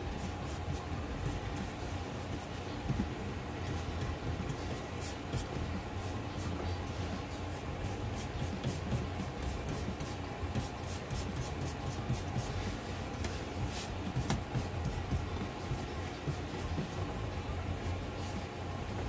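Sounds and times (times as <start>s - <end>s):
steady low hum: 0.0s - 19.0s
paintbrush swishing on wood: 3.7s - 17.0s.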